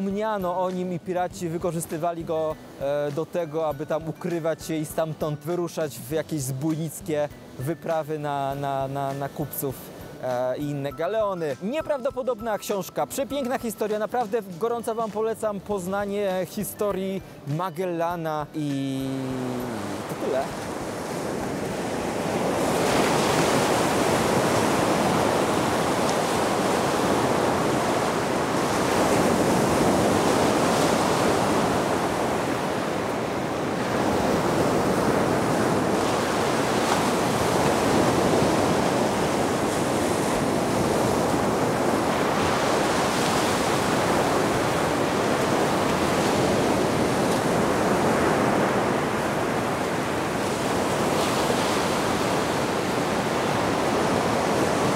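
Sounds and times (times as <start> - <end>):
surf washing onto shore: 18.5 - 54.9.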